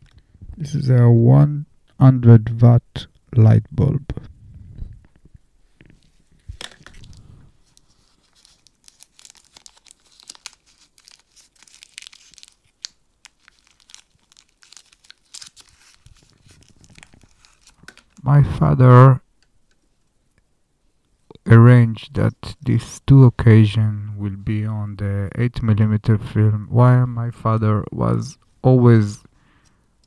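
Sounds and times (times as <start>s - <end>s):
packaging crinkling and rustling: 6.0s - 18.2s.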